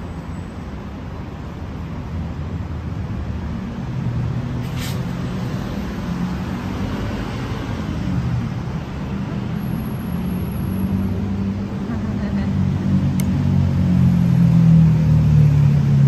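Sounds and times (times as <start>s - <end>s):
road traffic rumble: 0.0s - 16.0s
brief high hiss: 4.6s - 5.1s.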